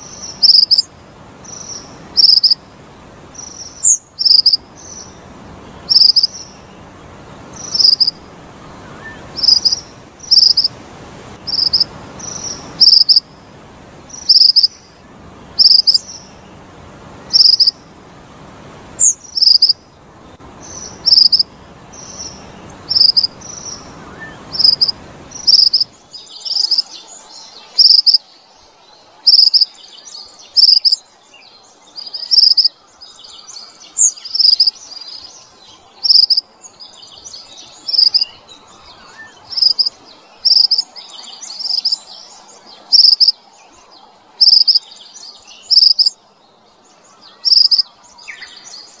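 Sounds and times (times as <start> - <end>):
faint bird chattering: 0.0 - 2.6, 3.3 - 6.8, 7.5 - 8.2, 8.8 - 10.7, 11.5 - 13.3, 14.1 - 14.9, 15.6 - 16.3, 17.3 - 17.8, 19.0 - 19.8, 20.6 - 28.4, 29.2 - 31.1, 31.9 - 46.2, 47.1 - 49.0
low background hiss: 0.0 - 49.0.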